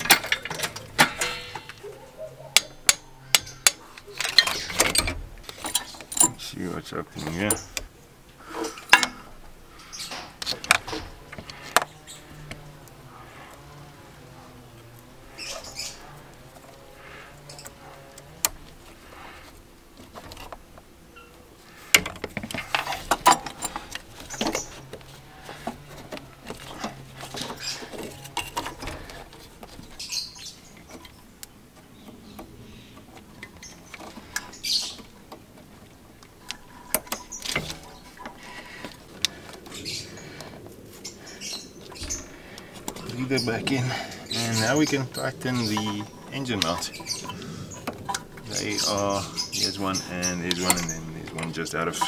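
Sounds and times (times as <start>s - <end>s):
metal clicks and clanks: 0.0s - 8.0s, 8.6s - 12.7s, 21.8s - 40.7s, 41.8s - 52.0s
short squeaks: 2.6s - 6.5s, 36.4s - 38.8s.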